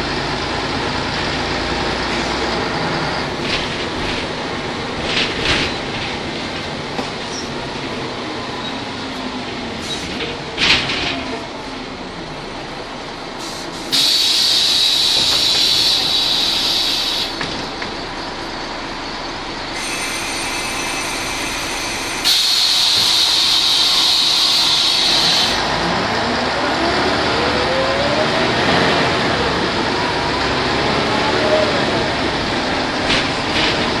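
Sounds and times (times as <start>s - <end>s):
bus pulling away whine: 0.0s - 34.0s
diesel bus engine running: 0.0s - 34.0s
compressed air hiss: 13.4s - 17.4s.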